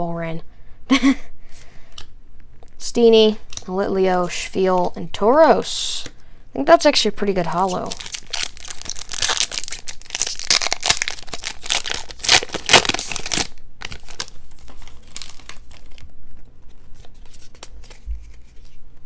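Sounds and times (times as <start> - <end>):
foil wrapper crinkling and tearing: 7.6 - 16.1
cards rustling and clicking: 7.6 - 18.8.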